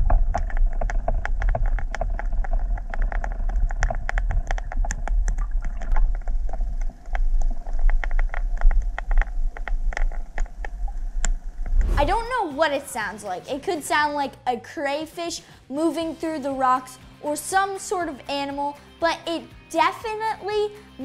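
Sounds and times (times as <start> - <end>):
underwater lure clicking on rocks: 0.0 - 11.4
low underwater rumble: 0.0 - 12.4.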